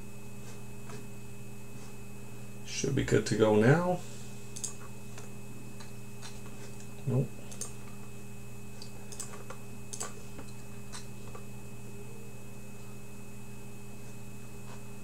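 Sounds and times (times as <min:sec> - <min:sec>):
steady electrical hum: 0:00.0 - 0:15.0
computer keyboard typing: 0:04.5 - 0:04.9, 0:07.5 - 0:08.0, 0:08.8 - 0:11.4.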